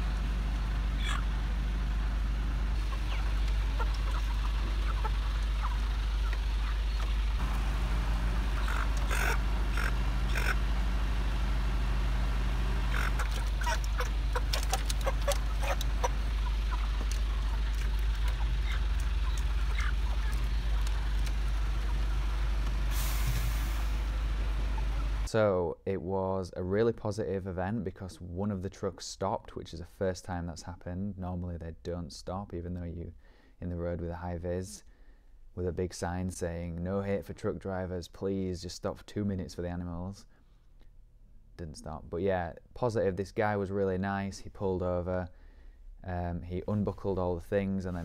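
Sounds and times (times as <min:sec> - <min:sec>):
truck engine droning: 0:00.0 - 0:25.3
chickens clucking and squawking: 0:00.6 - 0:01.5, 0:02.7 - 0:07.4, 0:08.1 - 0:11.6, 0:12.5 - 0:22.6, 0:24.2 - 0:25.3.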